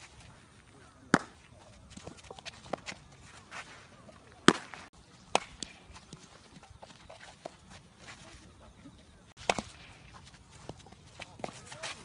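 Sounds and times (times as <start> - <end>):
footsteps on dirt: 0.0 - 12.0
baseball bat smacks: 1.1 - 1.4, 4.4 - 5.8, 9.4 - 10.1.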